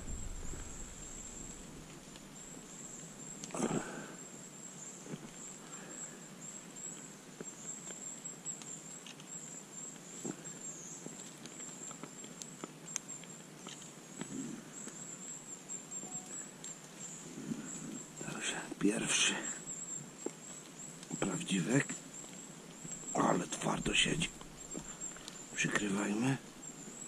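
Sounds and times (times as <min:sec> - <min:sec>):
handling noises and small ticks: 0:00.3 - 0:27.0
steady high-pitched tone: 0:16.0 - 0:16.4.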